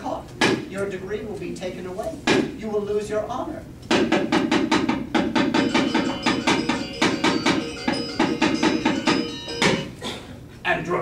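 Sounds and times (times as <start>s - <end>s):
metallophone rapid strikes: 3.9s - 10.0s.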